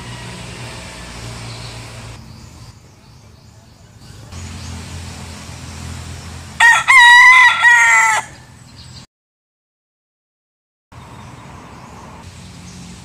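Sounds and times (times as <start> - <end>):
rooster crowing: 6.6 - 8.5.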